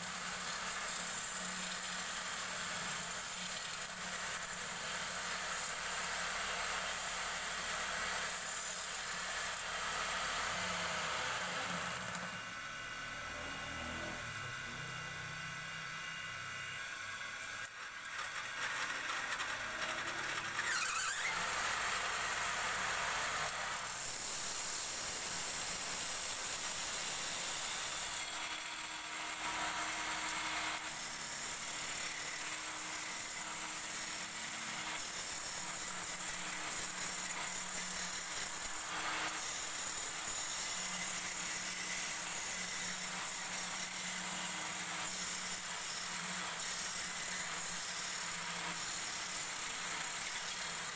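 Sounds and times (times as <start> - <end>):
turning tool hissing on wood: 0.0 - 12.3, 20.6 - 21.6, 23.4 - 50.9
lathe motor hum: 0.0 - 50.9.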